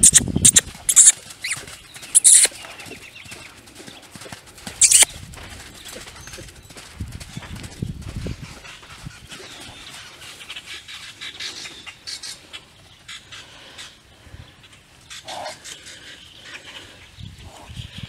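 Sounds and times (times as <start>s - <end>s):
hooves thudding on soft dirt: 0.0s - 11.0s
birds chirping: 0.0s - 18.0s.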